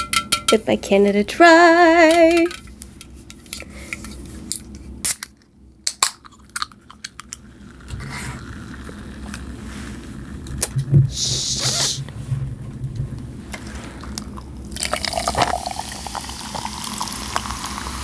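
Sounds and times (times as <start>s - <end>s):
fizzy can hiss: 11.1s - 12.0s, 14.8s - 18.0s
soda can handled: 14.8s - 16.7s.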